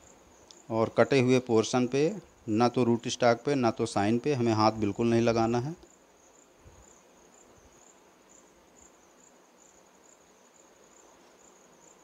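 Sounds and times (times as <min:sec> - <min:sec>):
high-pitched insect trill: 0:00.0 - 0:12.0
faint click: 0:00.4 - 0:00.6.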